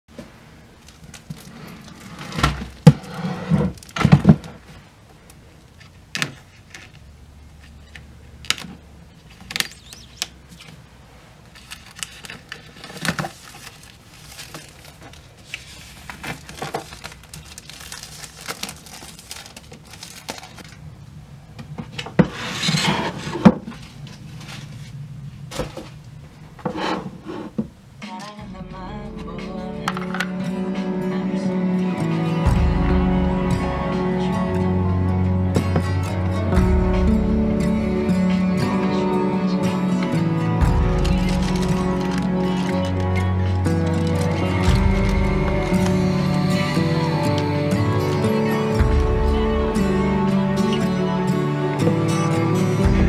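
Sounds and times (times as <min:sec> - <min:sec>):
plastic wrap crinkling: 0:11.4 - 0:20.8, 0:41.0 - 0:47.4.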